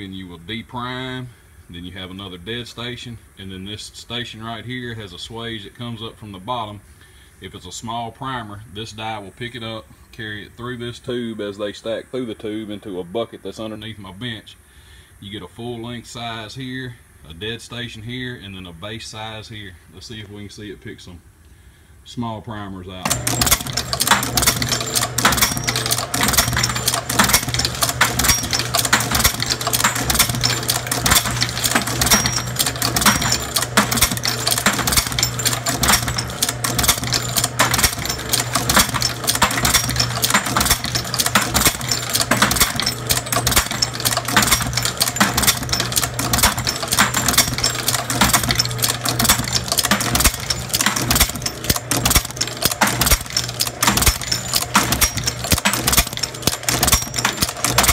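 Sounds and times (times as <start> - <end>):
metallic clicks clattering: 23.0 - 57.9
motor hum: 23.0 - 57.9.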